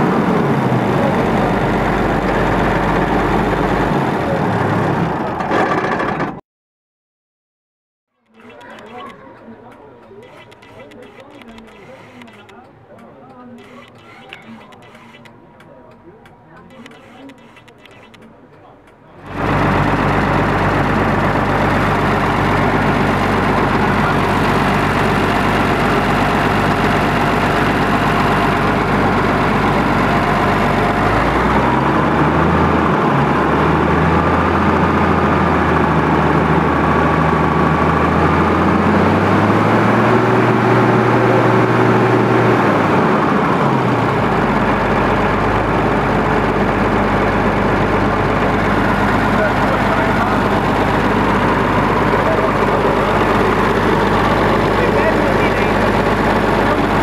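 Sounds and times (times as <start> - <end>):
tractor diesel engine revving: 0.0 - 6.4, 19.2 - 57.0.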